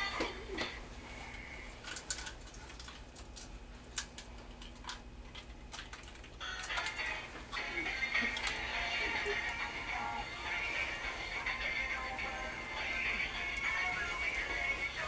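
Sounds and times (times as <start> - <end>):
faint steady hum: 0.0 - 15.0
music: 6.4 - 15.0.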